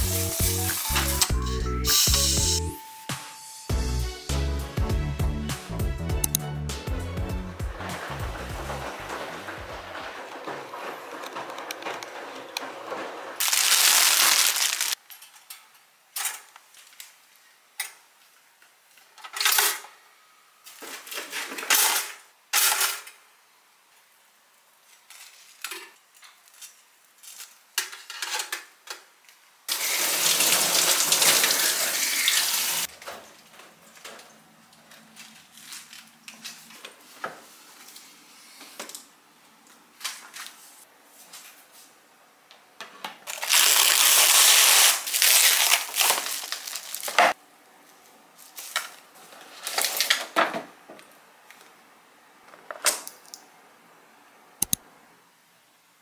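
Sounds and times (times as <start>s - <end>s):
plastic wrap box crinkling: 13.4s - 15.0s, 43.2s - 47.4s, 48.4s - 50.4s.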